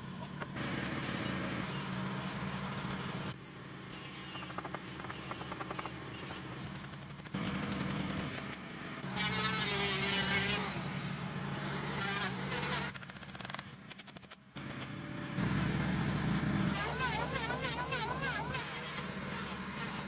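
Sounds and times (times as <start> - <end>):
power tool motor hum: 15.4 - 20.0.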